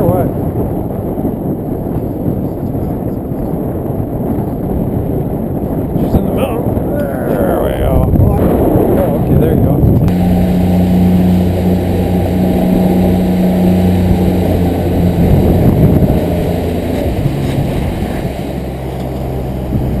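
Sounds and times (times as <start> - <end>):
water rushing past boat: 0.0 - 20.0
wind rushing: 0.0 - 20.0
outboard motor running: 5.6 - 20.0.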